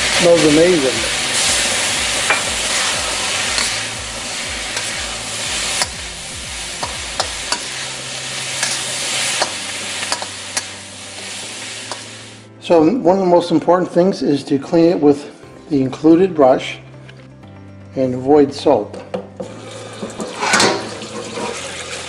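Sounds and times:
food sizzling in a wok: 0:00.0 - 0:12.6, 0:19.4 - 0:22.0
spatula scraping a wok: 0:01.4 - 0:06.1, 0:06.7 - 0:12.4, 0:19.6 - 0:21.6.

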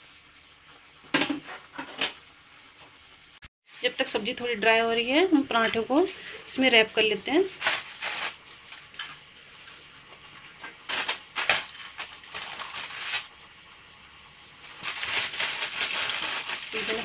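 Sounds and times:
aluminium foil crinkling: 0:07.5 - 0:09.1, 0:10.9 - 0:13.3, 0:14.6 - 0:17.0.

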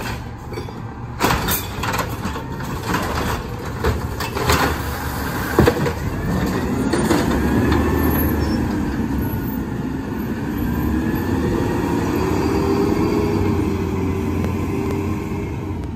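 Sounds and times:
truck engine accelerating: 0:04.8 - 0:15.9.

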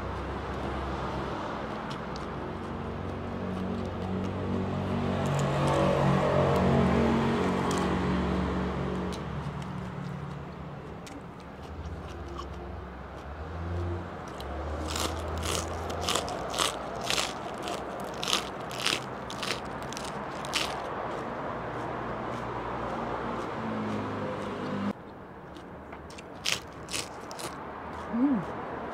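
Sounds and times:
lettuce being bitten and chewed: 0:01.7 - 0:06.8, 0:07.4 - 0:24.8, 0:25.5 - 0:28.9.

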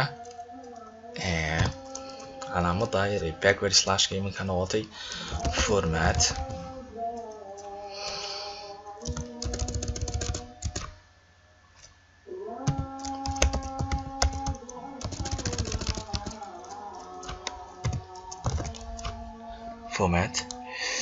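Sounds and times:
keyboard keys clicking: 0:05.3 - 0:06.5, 0:09.0 - 0:11.0, 0:12.7 - 0:19.2.

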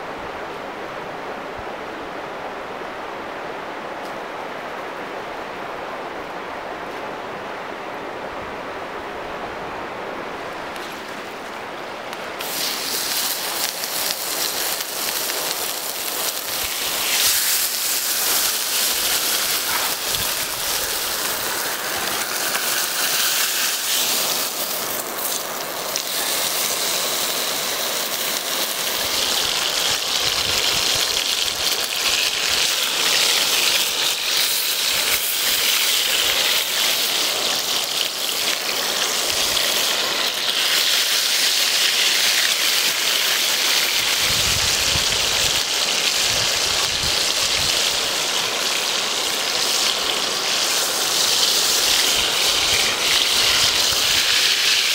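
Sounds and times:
steak sizzling in a pan: 0:12.4 - 0:54.9.

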